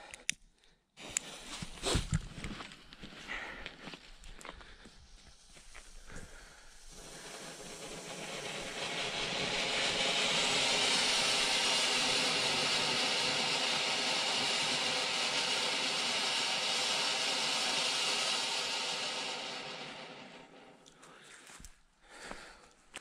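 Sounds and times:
firework fountain hissing: 0:01.0 - 0:02.2, 0:04.2 - 0:21.0.

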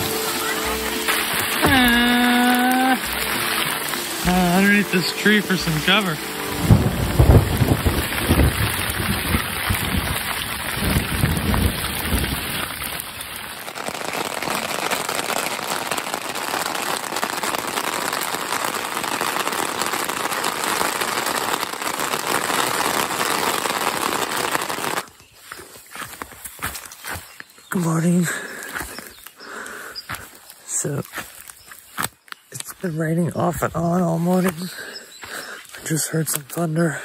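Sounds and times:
heavy rain: 0:00.0 - 0:31.4, 0:33.5 - 0:37.0
rain pattering on a tent: 0:00.0 - 0:32.8, 0:33.5 - 0:37.0
thunder rumbling: 0:05.7 - 0:13.4.

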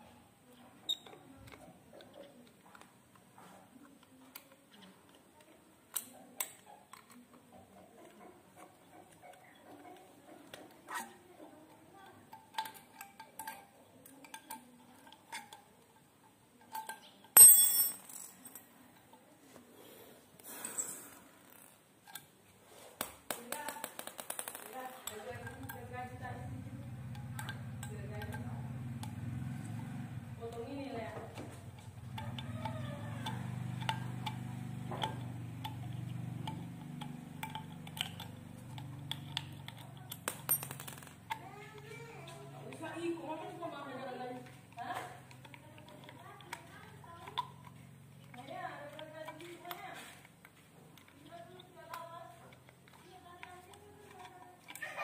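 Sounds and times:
hand tools clicking and ticking: 0:04.0 - 0:19.1, 0:23.0 - 0:55.0
sharp metallic clink: 0:16.8 - 0:18.6
screwdriver clicking on small screws: 0:30.4 - 0:41.9, 0:44.4 - 0:55.0.

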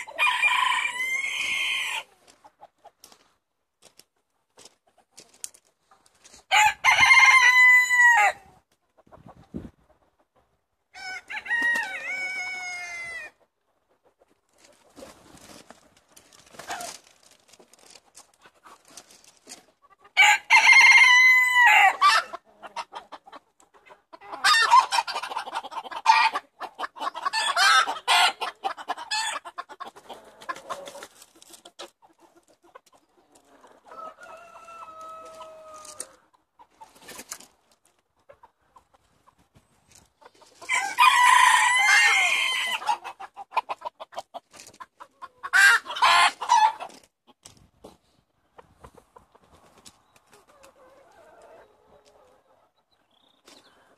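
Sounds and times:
roosters crowing: 0:00.0 - 0:02.1, 0:06.5 - 0:08.4, 0:10.9 - 0:13.4, 0:20.2 - 0:22.4, 0:27.2 - 0:31.1, 0:33.6 - 0:36.2, 0:40.6 - 0:43.2, 0:45.4 - 0:46.9
chicken clucks: 0:00.0 - 0:03.5, 0:08.5 - 0:17.1, 0:18.0 - 0:20.2, 0:21.9 - 0:53.9.

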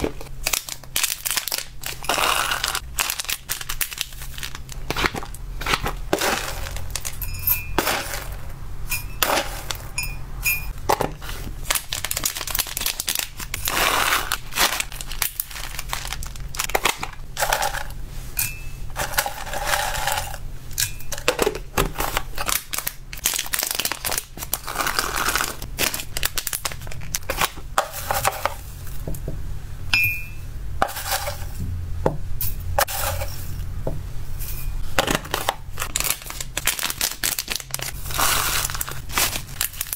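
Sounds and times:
dry snacks rustling: 0:00.2 - 0:07.2, 0:11.1 - 0:18.0, 0:21.9 - 0:28.6, 0:35.0 - 0:39.9
scoop clinking on glass: 0:29.9 - 0:30.4.

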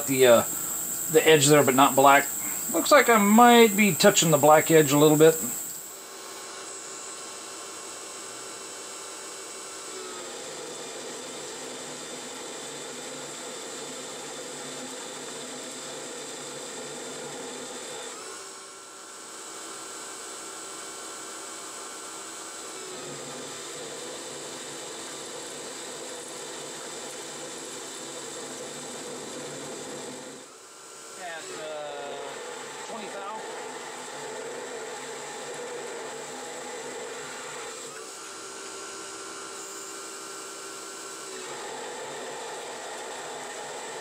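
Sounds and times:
metal lathe cutting steel: 0:00.0 - 0:05.9, 0:22.8 - 0:44.0.

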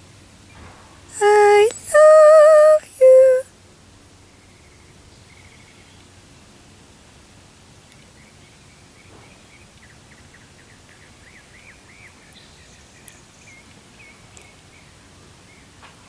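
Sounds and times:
songbird singing faintly: 0:04.2 - 0:06.2, 0:07.1 - 0:15.8.

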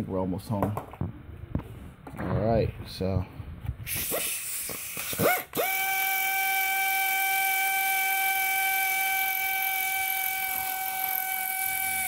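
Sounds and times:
cordless power tool whining: 0:03.9 - 0:12.0.

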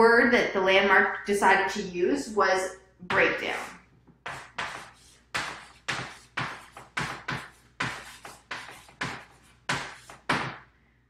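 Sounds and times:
chalk writing on chalkboard: 0:04.2 - 0:10.6.

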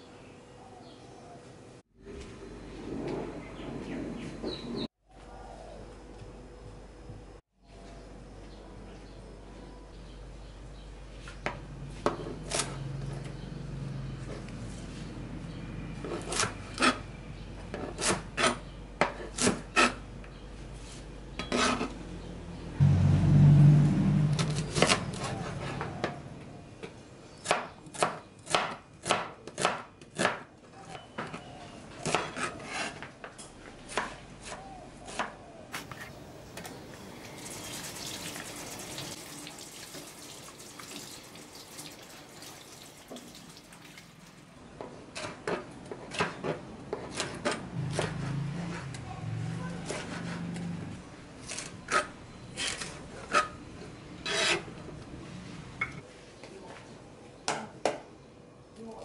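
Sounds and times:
low rumble: 0:22.8 - 0:25.7.

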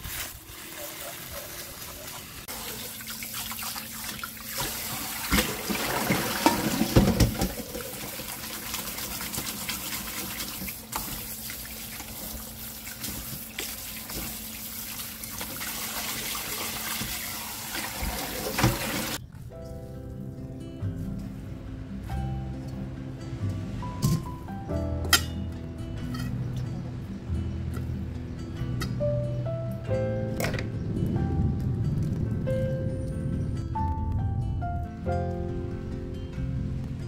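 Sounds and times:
noodles rinsed by hand: 0:00.0 - 0:19.2
splashing and knocks: 0:04.1 - 0:14.4
tap running into sink: 0:17.8 - 0:19.2.

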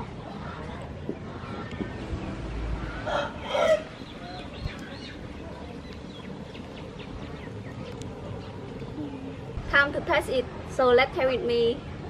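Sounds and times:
chicken squawking: 0:03.0 - 0:04.4.

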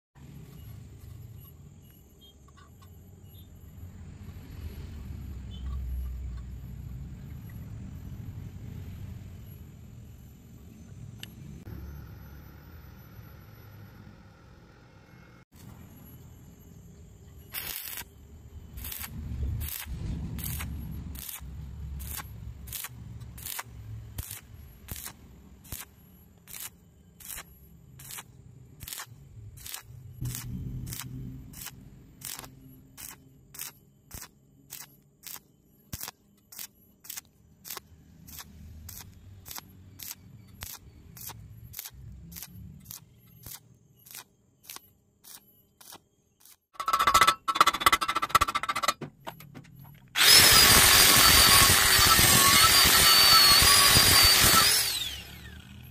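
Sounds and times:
welding arc crackling pops: 0:17.5 - 0:18.1, 0:18.8 - 0:25.9, 0:26.5 - 0:46.6.

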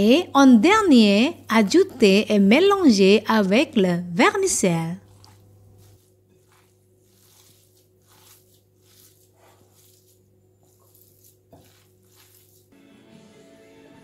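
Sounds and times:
hand squishing food filling: 0:04.3 - 0:12.8.

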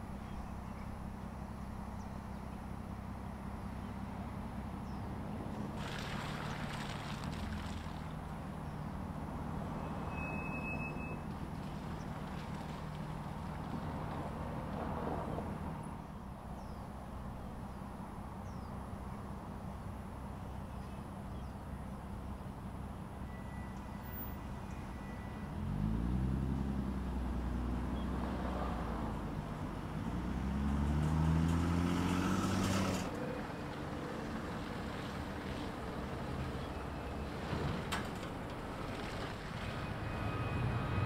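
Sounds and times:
engine rising in pitch: 0:30.0 - 0:33.6, 0:39.5 - 0:41.0.

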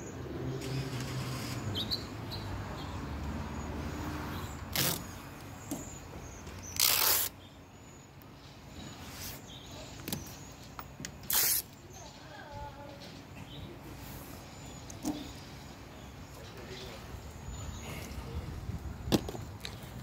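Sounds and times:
spray bottle spritzing: 0:11.2 - 0:11.7.

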